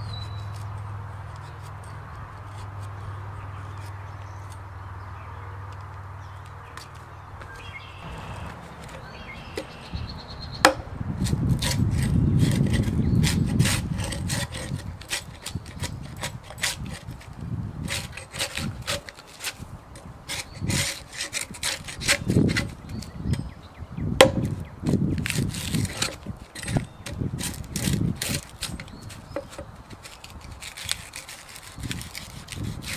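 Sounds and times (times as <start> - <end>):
knife scraping bark off log: 0.0 - 4.6, 7.6 - 23.5, 24.2 - 32.9
sharp knock: 10.6 - 10.9, 24.2 - 24.5.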